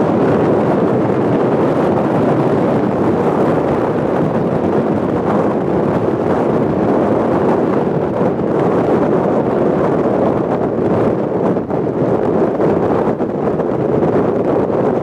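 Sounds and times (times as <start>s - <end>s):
strong wind on microphone: 0.0s - 15.0s.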